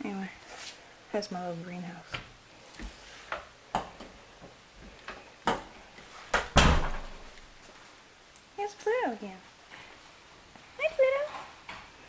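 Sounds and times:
door shutting with a thud: 0:06.3 - 0:07.3.

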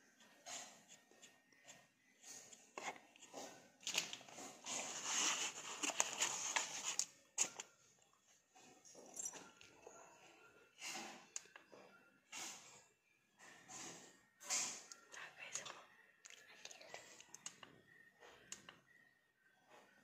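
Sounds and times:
rustling and scraping packaging: 0:02.5 - 0:09.7.

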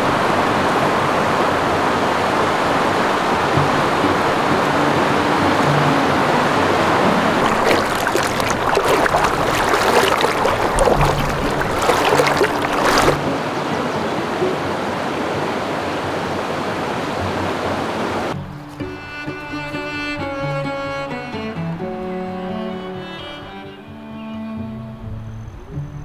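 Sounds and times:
stream flowing: 0:00.0 - 0:18.6
string music: 0:01.9 - 0:15.8, 0:18.3 - 0:26.0
splashing footsteps in water: 0:07.3 - 0:13.2.

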